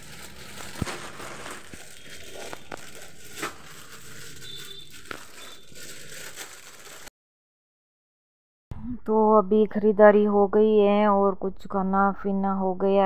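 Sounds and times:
plastic packets rustling: 0.0 - 7.1.

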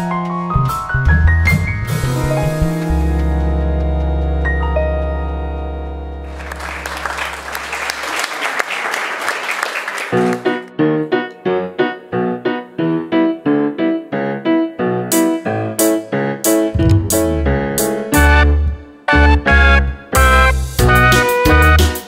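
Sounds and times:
piano repeated notes: 0.0 - 7.5, 10.2 - 22.0
applause: 6.2 - 10.7
held chord over deep bass: 16.8 - 18.9.

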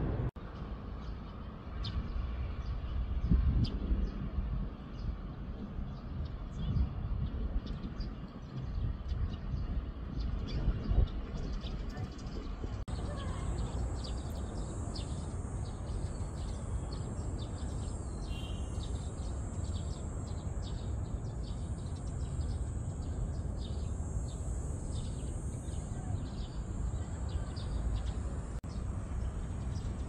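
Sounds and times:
steady low rumble: 0.0 - 18.3
bird chirps: 7.6 - 30.0.

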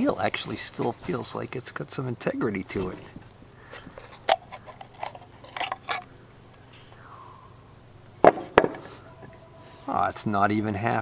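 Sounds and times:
crickets chirring: 0.0 - 11.0
metal cover clicks: 4.2 - 6.1.

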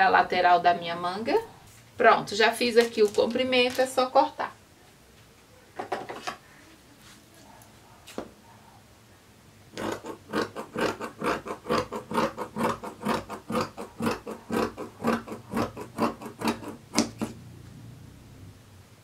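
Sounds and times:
fabric shears snipping cloth: 9.8 - 17.4.

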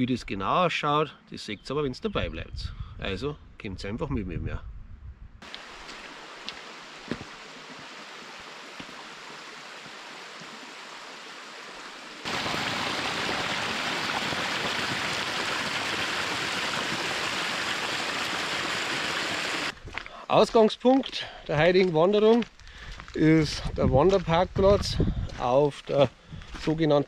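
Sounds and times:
stream water rushing: 5.4 - 19.8.

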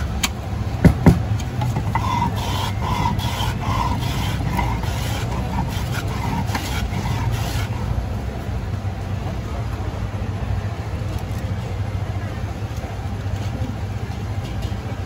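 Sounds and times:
hand plane scraping: 1.6 - 7.9.

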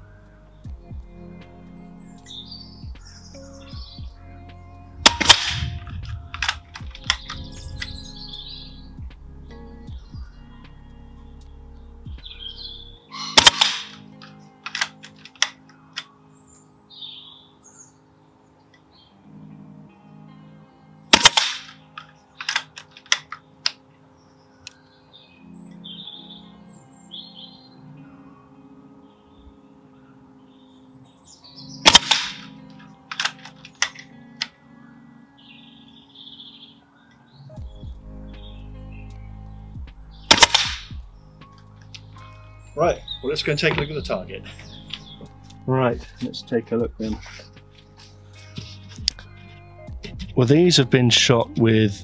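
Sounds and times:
birds chirping: 0.0 - 52.0
metallic clicks of rifle lever: 5.0 - 8.0, 13.2 - 16.1, 21.1 - 23.8, 31.8 - 32.5, 33.1 - 34.5, 40.3 - 40.8
air rifle shot: 5.0 - 8.1, 13.2 - 14.1, 21.1 - 21.8, 31.8 - 32.5, 40.3 - 41.1.

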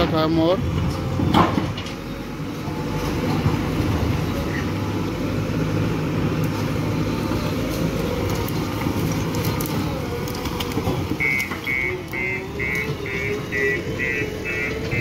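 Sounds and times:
diesel engine working hard: 0.0 - 15.0
reversing alarm beeping: 11.2 - 15.0.

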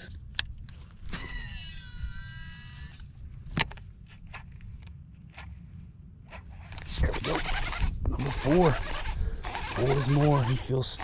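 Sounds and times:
reel brake whining: 6.6 - 11.0
fishing reel clicks: 6.8 - 11.0.

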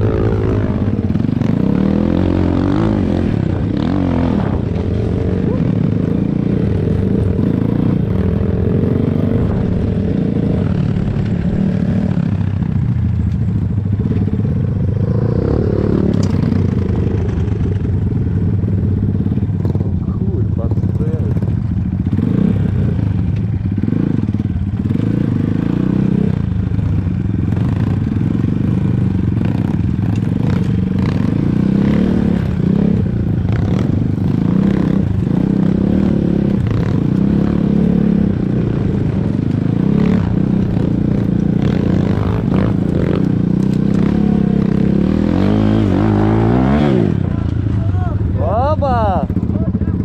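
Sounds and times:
motorcycle engine running: 0.0 - 50.0.

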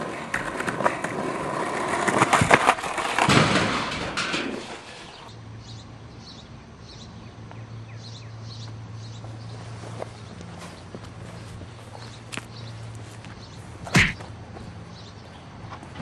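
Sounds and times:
footsteps on concrete: 8.6 - 16.0.

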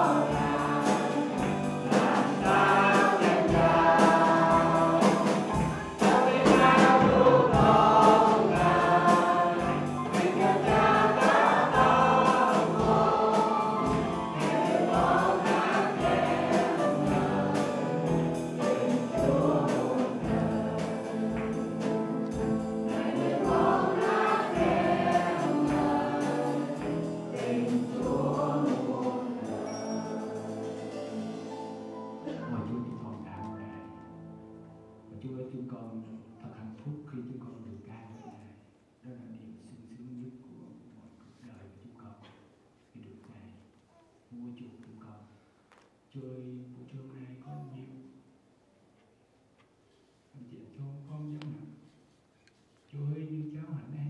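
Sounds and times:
drum kit steady beat: 0.0 - 32.4
group singing gospel song: 0.0 - 32.4.

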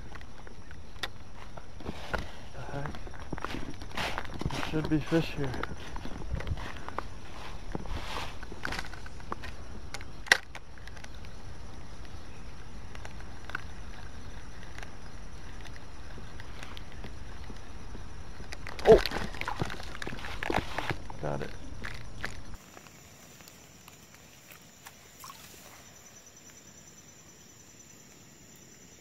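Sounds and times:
handling noise: 0.0 - 12.2, 12.8 - 26.6
footsteps in dry leaves: 1.8 - 8.4, 18.9 - 21.2.

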